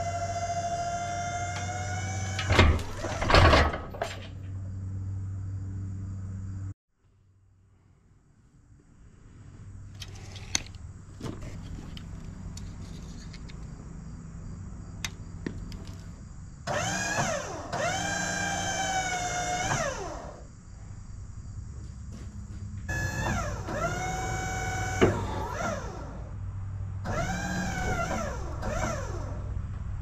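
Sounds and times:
sawmill engine humming: 0.0s - 3.3s, 15.0s - 20.4s, 22.9s - 29.9s.

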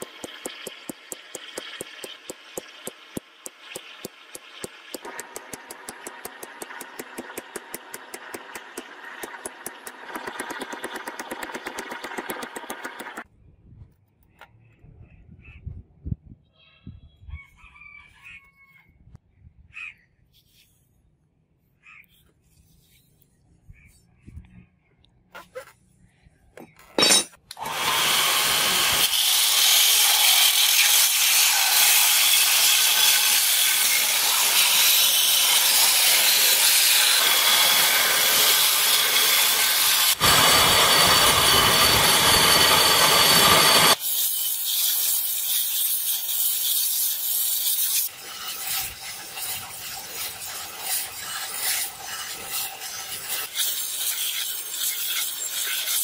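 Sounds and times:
belt grinder grinding metal: 0.0s - 13.2s, 27.0s - 56.0s.

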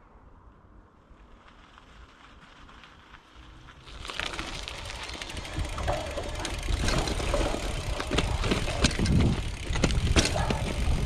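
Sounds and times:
bike rattling over bumps: 1.5s - 11.0s
tyres rumbling on dirt: 2.6s - 11.0s.

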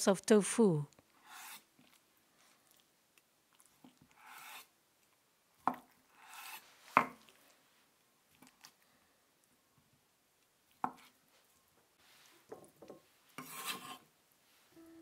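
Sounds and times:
knife sliding through tofu: 1.1s - 2.0s, 3.8s - 4.8s, 6.0s - 7.5s, 13.2s - 14.1s.

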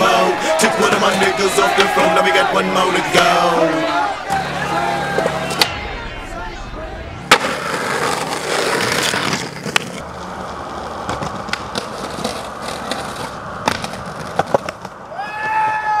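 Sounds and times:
skateboard wheels rolling on pavement: 0.0s - 5.7s, 7.2s - 16.0s
person shouting: 0.0s - 7.0s
skateboard clacks: 7.3s - 16.0s.

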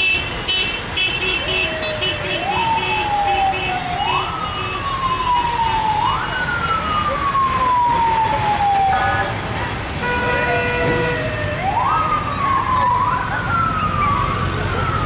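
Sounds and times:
street traffic noise: 0.0s - 15.0s.

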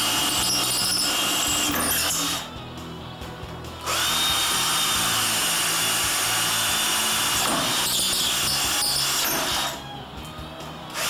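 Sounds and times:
power drill whining into brick: 0.0s - 2.6s, 3.8s - 10.0s.

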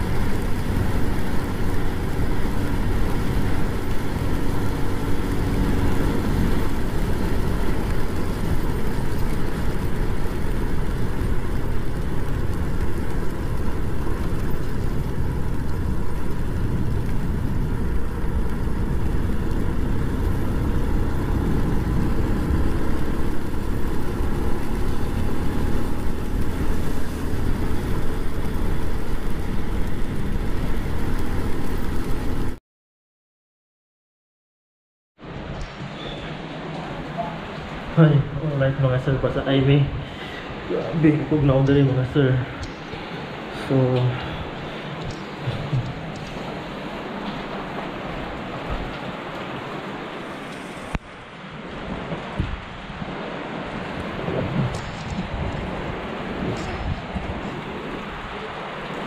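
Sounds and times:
wind noise: 0.0s - 32.6s, 39.1s - 59.0s.

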